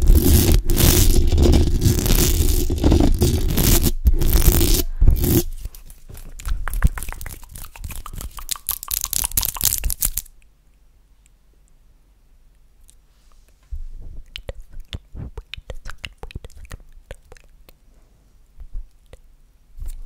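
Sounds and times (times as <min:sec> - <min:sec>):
nails scratching microphone grille: 0:00.0 - 0:05.8
hand clicks and crackles: 0:05.7 - 0:10.5.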